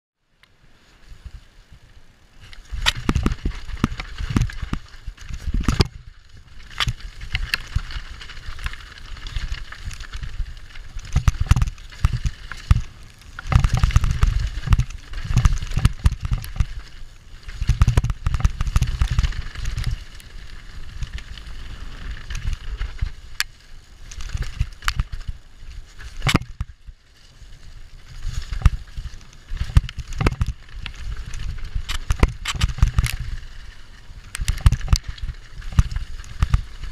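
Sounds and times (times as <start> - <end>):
bike tyres on dirt and rock: 0.2 - 36.9
wind rumble on microphone: 0.6 - 36.9
bike knocking and rattling on rocks: 2.4 - 36.9.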